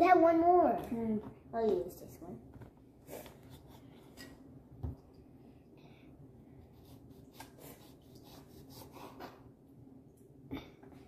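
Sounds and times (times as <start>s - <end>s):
knife cutting on cutting board: 6.8s - 9.4s.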